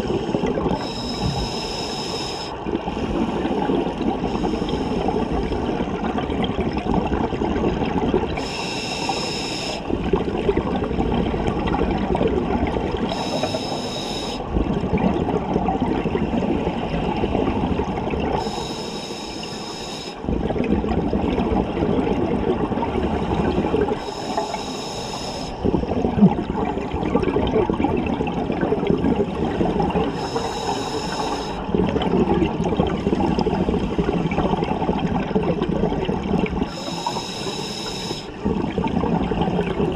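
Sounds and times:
bubbling exhaled air: 0:00.0 - 0:39.9
regulator inhalation hiss: 0:00.8 - 0:02.6, 0:08.4 - 0:09.9, 0:13.1 - 0:14.5, 0:18.4 - 0:20.2, 0:24.0 - 0:25.6, 0:30.1 - 0:31.6, 0:36.7 - 0:38.4.

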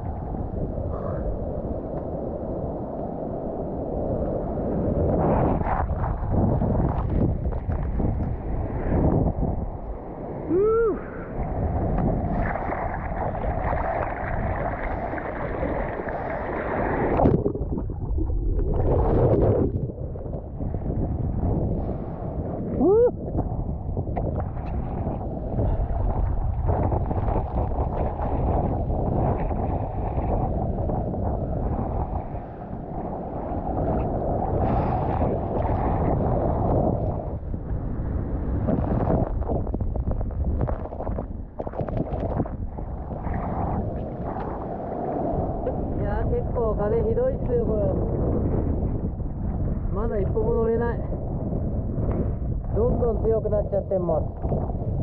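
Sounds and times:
wind buffeting microphone: 0:00.0 - 0:55.0
surf water rushing: 0:02.0 - 0:39.6.

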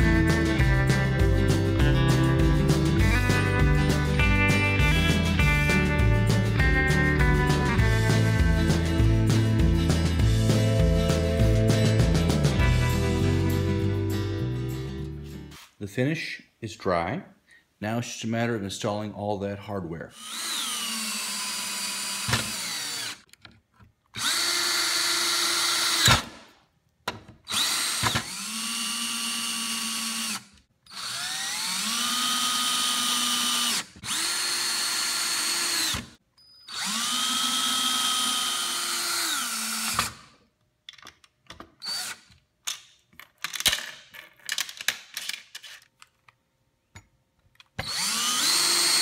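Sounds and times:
drill motor whine: 0:20.2 - 0:23.2, 0:24.2 - 0:26.2, 0:27.5 - 0:40.2, 0:41.8 - 0:42.2, 0:47.8 - 0:49.0.

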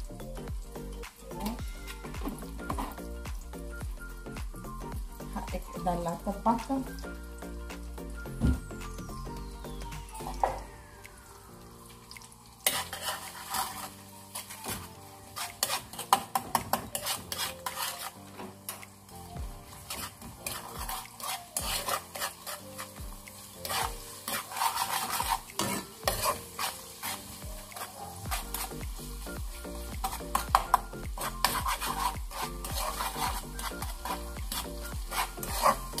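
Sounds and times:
oil sizzling: 0:00.0 - 0:36.0
metal spoon scraping a wok: 0:12.6 - 0:18.8, 0:19.8 - 0:28.8, 0:30.0 - 0:36.0.

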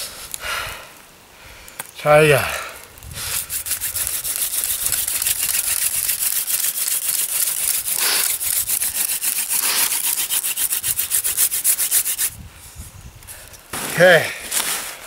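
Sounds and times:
wooden spindle scraping squeak: 0:03.4 - 0:12.4.

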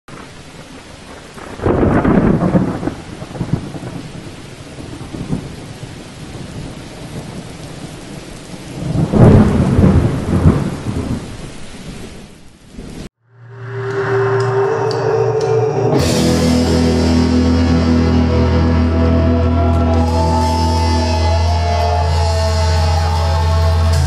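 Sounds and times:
steady rain hiss: 0:00.1 - 0:13.1
thunder rumbling: 0:00.1 - 0:13.1.

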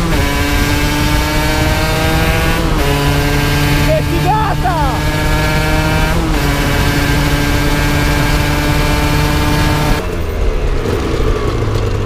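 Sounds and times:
wind rush over microphone: 0:00.0 - 0:03.9
motorcycle engine at high revs: 0:00.0 - 0:12.0.

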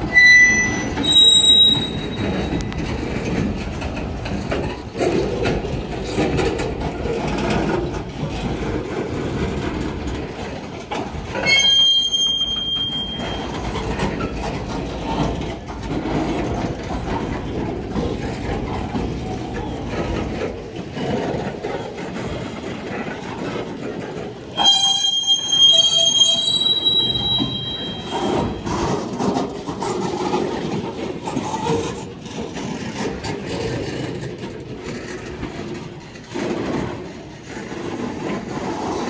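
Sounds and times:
high-pitched steel squeal: 0:00.0 - 0:02.9, 0:11.4 - 0:14.3, 0:24.5 - 0:29.0
train wheels rumbling on rails: 0:00.0 - 0:39.0
wheels clicking over rail joints: 0:00.0 - 0:39.0.

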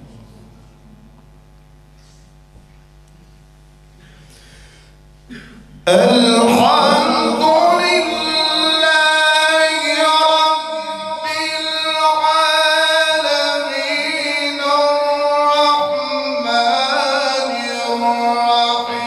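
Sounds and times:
man reciting melodically: 0:05.8 - 0:19.0.

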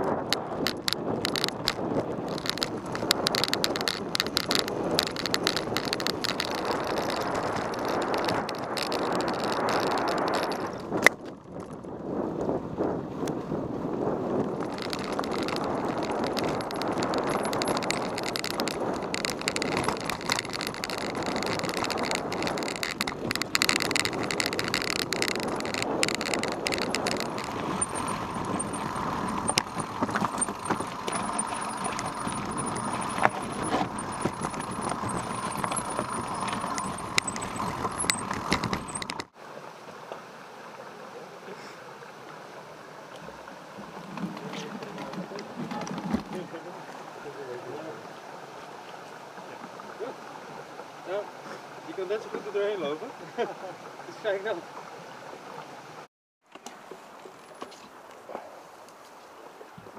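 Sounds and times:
mountain bike rattling over rocks: 0:00.0 - 0:12.0, 0:14.3 - 0:39.4, 0:43.8 - 0:46.6
outdoor background noise: 0:00.0 - 0:59.9
tyre rushing noise: 0:13.6 - 0:39.4.

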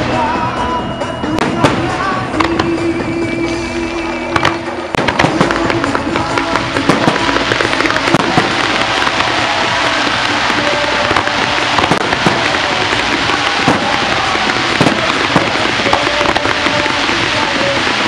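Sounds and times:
firework fountains hissing crackle: 0:00.0 - 0:18.0
music: 0:00.0 - 0:18.0
firework shells bursting with bangs: 0:04.2 - 0:18.0.

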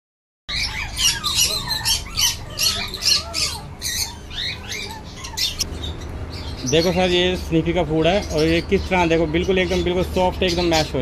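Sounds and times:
animal chirps and squawks: 0:00.5 - 0:07.0.

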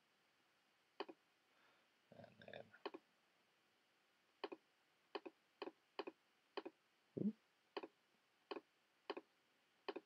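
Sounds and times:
computer mouse clicks: 0:01.0 - 0:01.2, 0:04.4 - 0:04.6, 0:05.2 - 0:06.8, 0:08.5 - 0:09.3.

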